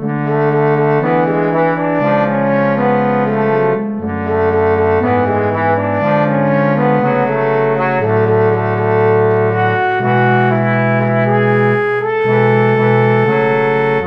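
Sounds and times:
low brass quartet playing: 0.0 - 14.0.

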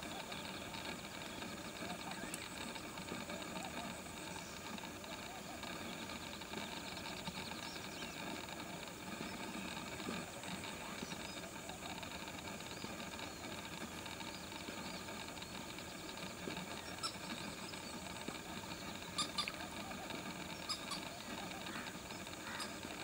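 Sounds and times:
steady hiss: 0.0 - 23.0
high chirping bird calls: 12.6 - 22.9.

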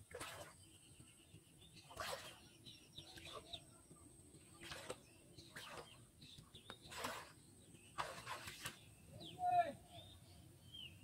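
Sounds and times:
legs wading through water: 0.0 - 0.8, 1.8 - 3.6, 4.4 - 9.0
small birds chirping: 0.0 - 11.0.

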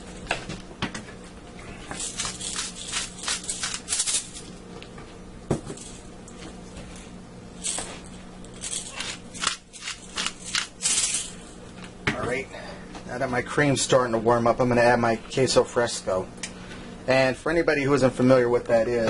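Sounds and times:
low steady hum: 0.0 - 19.0
salt and pepper grinding: 1.9 - 4.5, 7.7 - 11.4.

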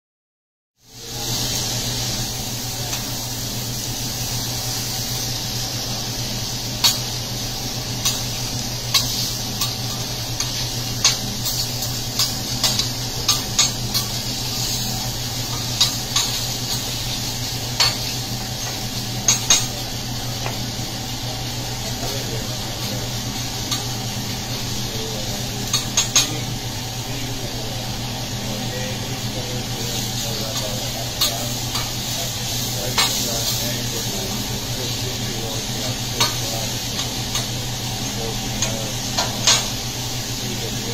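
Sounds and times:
chicken sizzling on a griddle: 0.8 - 40.9
steady low hum: 0.9 - 40.9
metal utensils clacking on steel: 8.9 - 14.2.

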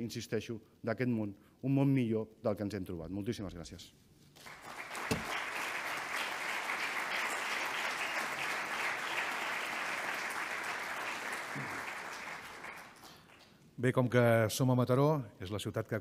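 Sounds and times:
audience applauding: 4.4 - 13.6.

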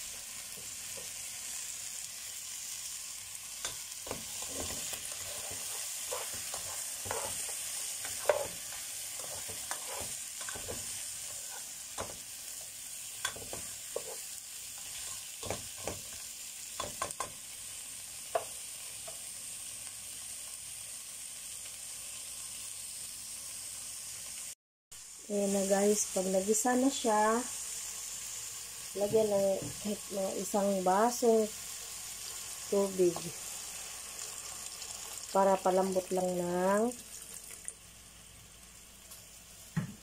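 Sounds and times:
food sizzling in a pot: 0.0 - 40.0
spatula scraping a pot: 4.1 - 11.7, 13.3 - 15.2.

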